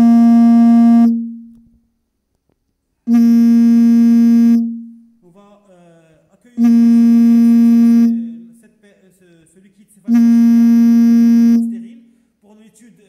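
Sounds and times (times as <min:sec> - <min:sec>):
buzzy synthesizer note: 0:00.0 - 0:01.6, 0:03.1 - 0:05.0, 0:06.6 - 0:08.5, 0:10.1 - 0:12.0.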